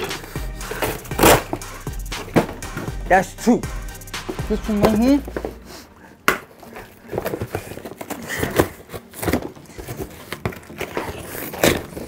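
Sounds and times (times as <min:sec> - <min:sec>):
knife slitting cardboard box: 0:00.7 - 0:01.6, 0:06.8 - 0:12.0.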